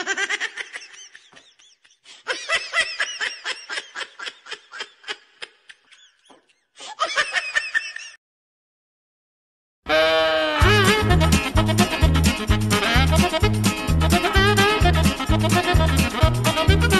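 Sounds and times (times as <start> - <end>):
person laughing hard: 0.0 - 8.2.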